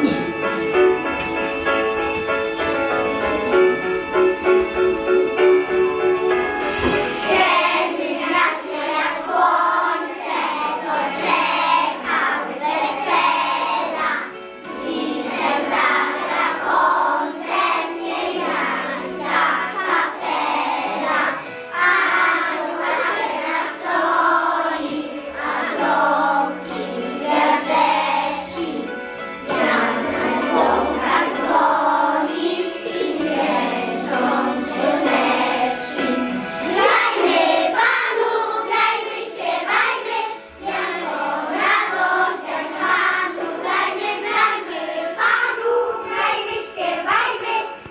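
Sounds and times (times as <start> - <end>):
instrumental accompaniment with bass: 0.0 - 8.2
children singing: 6.8 - 47.9.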